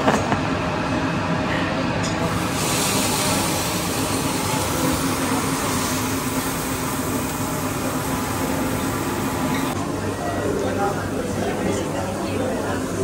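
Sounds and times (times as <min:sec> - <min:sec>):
seafood sizzling on griddle: 0:02.2 - 0:09.5.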